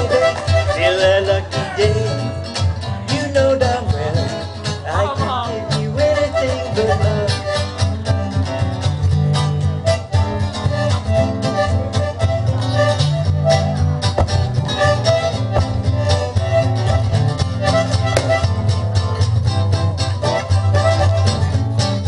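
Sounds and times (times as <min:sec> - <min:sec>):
acoustic guitars playing swing: 0:00.0 - 0:22.0.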